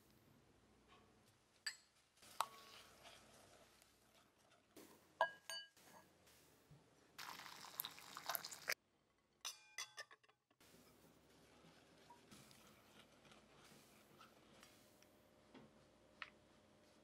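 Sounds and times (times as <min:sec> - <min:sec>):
water poured into glass bowl: 0:07.2 - 0:08.8.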